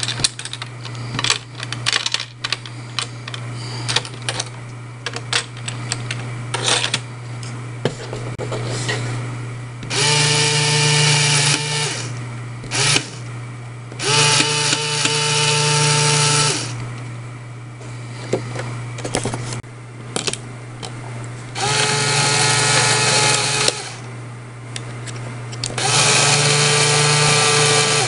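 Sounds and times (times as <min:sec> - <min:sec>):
plastic parts clicking: 0:00.0 - 0:04.5
electric motor whirring: 0:09.8 - 0:13.3, 0:14.0 - 0:16.8, 0:21.6 - 0:24.1, 0:25.8 - 0:28.0.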